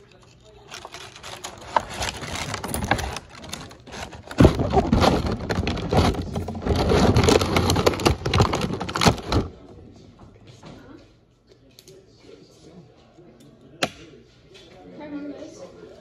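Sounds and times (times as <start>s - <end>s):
handling noise on microphone: 0.7s - 9.6s.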